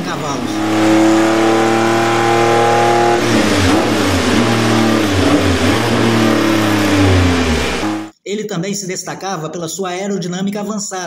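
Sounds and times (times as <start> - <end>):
race car engine on dynamometer: 0.0 - 8.1.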